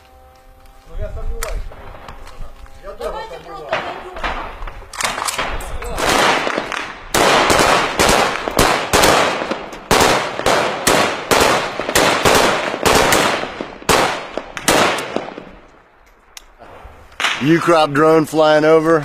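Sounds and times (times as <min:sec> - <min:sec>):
rifle single shots: 0:03.7 - 0:15.6.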